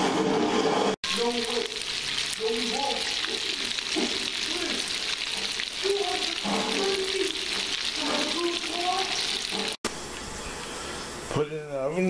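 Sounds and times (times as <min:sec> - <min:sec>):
chicken deep frying in oil: 0:01.0 - 0:09.8.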